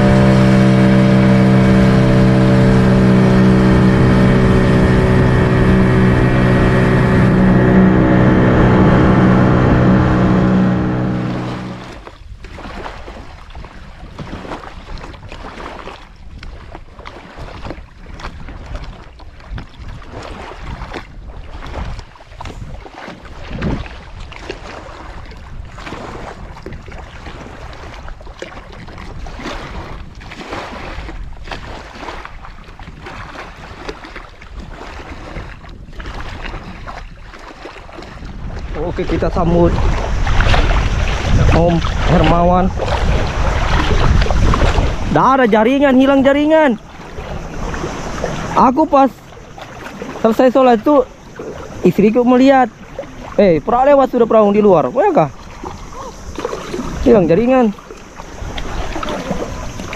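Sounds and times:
loud steady drone: 0:00.0 - 0:12.0
wind buffeting microphone: 0:00.0 - 0:52.0
sea water lapping and splashing: 0:00.0 - 0:59.9.

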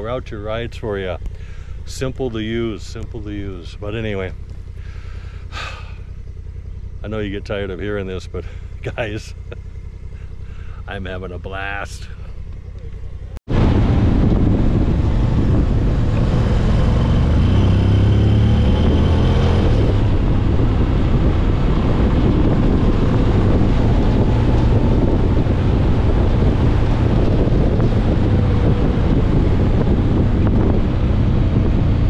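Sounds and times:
motorcycle engine drone: 0:00.0 - 0:32.0
wind rush on microphone: 0:13.5 - 0:32.0.

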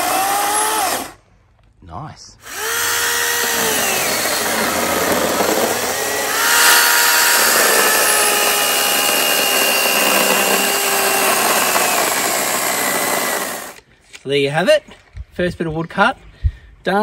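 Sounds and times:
electric chainsaw cutting log: 0:00.0 - 0:01.2, 0:02.4 - 0:13.8.

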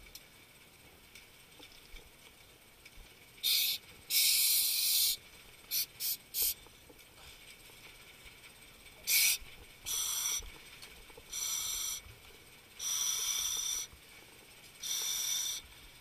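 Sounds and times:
compressed air hissing bursts: 0:03.4 - 0:06.6, 0:09.1 - 0:10.4, 0:11.3 - 0:12.0, 0:12.8 - 0:13.9, 0:14.8 - 0:15.6.

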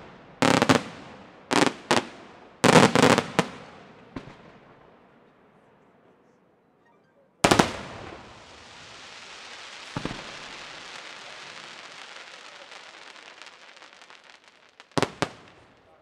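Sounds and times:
small firework pops: 0:03.2 - 0:04.5, 0:08.7 - 0:16.0
crackling of falling sparks: 0:07.6 - 0:16.0.

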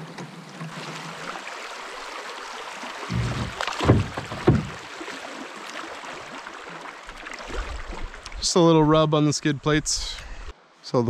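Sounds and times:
water rushing past canoe: 0:00.0 - 0:10.5
canoe hull scraping rock: 0:03.0 - 0:04.9.

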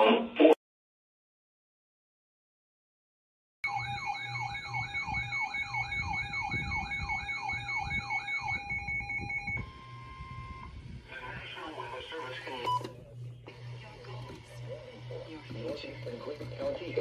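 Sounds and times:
steady higher tone: 0:03.6 - 0:10.7
sweeping siren alert tone: 0:03.6 - 0:10.7.

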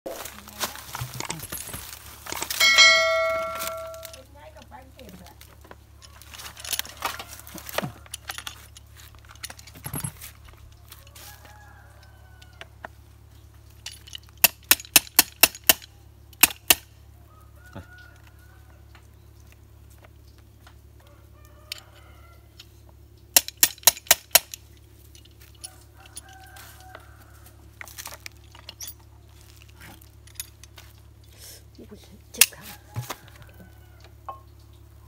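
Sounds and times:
sharp metallic clicks of clamps: 0:13.8 - 0:16.9, 0:23.3 - 0:25.4.

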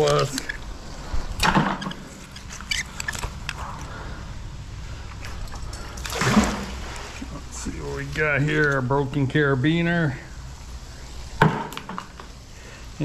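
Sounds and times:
light metallic clinks: 0:05.2 - 0:06.2
water splash: 0:06.0 - 0:07.4.

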